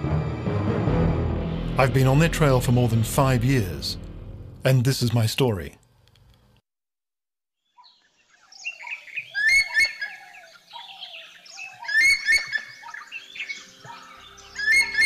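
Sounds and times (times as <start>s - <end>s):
low sustained music tones: 0.0s - 4.8s, 12.4s - 15.0s
birds calling and chirping: 7.8s - 15.0s.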